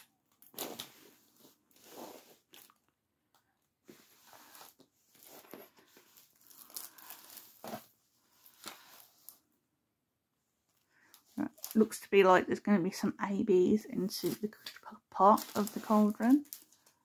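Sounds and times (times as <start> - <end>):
plastic film crinkling: 4.3 - 9.4, 11.1 - 12.1, 14.1 - 17.0.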